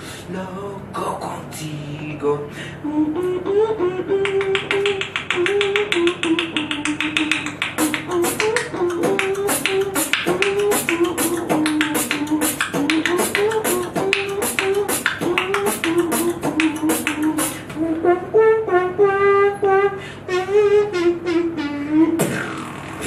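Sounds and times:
buzzing wavering vocal tone: 0:00.0 - 0:23.0
hummed melody: 0:00.3 - 0:23.0
beatboxing mouth clicks: 0:03.2 - 0:18.1, 0:21.4 - 0:23.0.

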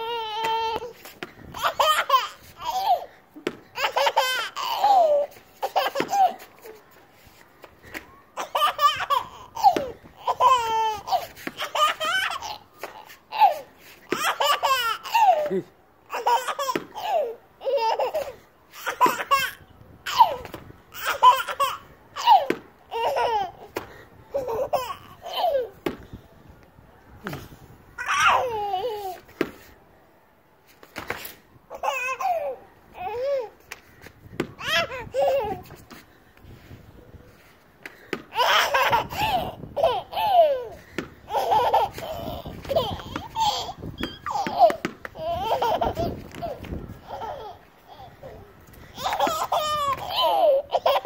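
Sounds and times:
baby laughing: 0:01.5 - 0:06.8, 0:08.4 - 0:23.7, 0:24.3 - 0:25.8, 0:31.7 - 0:33.6, 0:34.6 - 0:35.8, 0:38.3 - 0:51.0.

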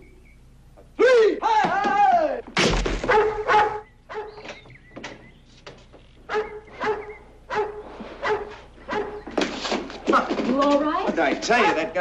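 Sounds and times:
dog barking: 0:03.0 - 0:04.4, 0:06.3 - 0:09.3.

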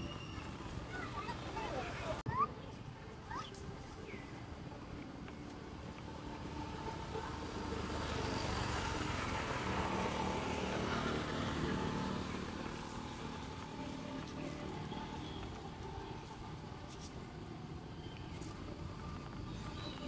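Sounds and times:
motor vehicle passing by: 0:04.9 - 0:20.0.

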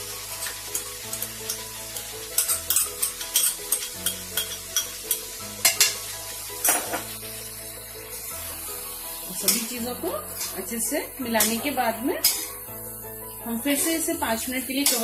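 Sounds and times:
vegetables sizzling in a pan: 0:00.0 - 0:15.0
spoon scraping and tapping pan: 0:00.4 - 0:06.0, 0:06.6 - 0:07.1, 0:11.3 - 0:12.6, 0:14.8 - 0:15.0.

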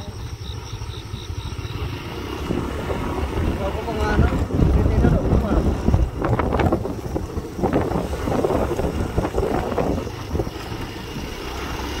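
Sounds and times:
motorcycle rumbling on rough road: 0:00.0 - 0:12.0
wind rushing over microphone: 0:01.0 - 0:12.0.

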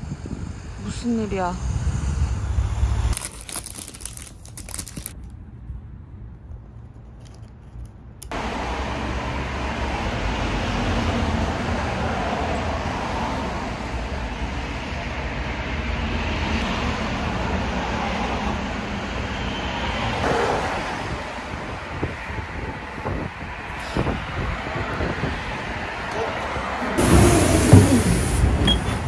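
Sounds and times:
passing cars traffic rush: 0:00.0 - 0:03.2, 0:08.3 - 0:29.0.

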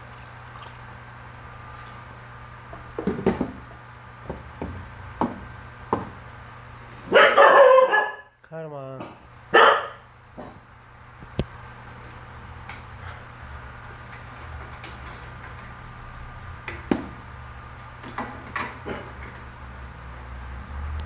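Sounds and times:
air compressor humming: 0:00.0 - 0:21.0
knock: 0:04.3 - 0:06.2.

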